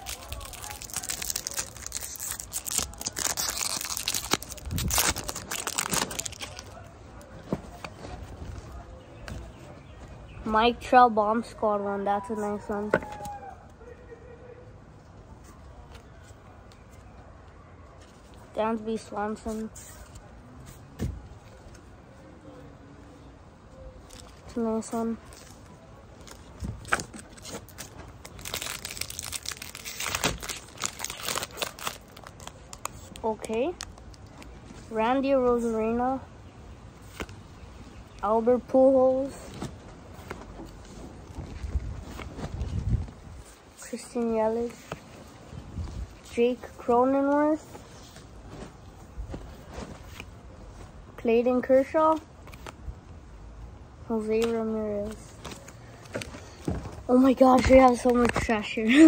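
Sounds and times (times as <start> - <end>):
wrapper crinkling and tearing: 0.0 - 6.9, 24.1 - 34.5
cards handled: 52.4 - 52.8.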